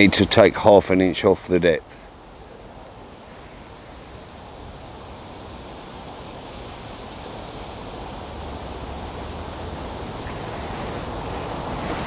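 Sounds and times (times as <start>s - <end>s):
wind blowing through trees: 0.0s - 12.0s.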